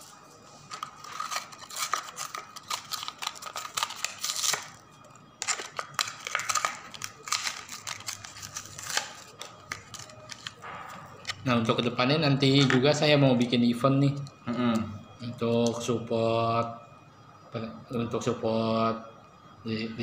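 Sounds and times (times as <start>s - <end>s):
plastic crinkling: 0.6s - 11.4s
cardboard tearing: 0.8s - 4.8s, 5.5s - 10.6s.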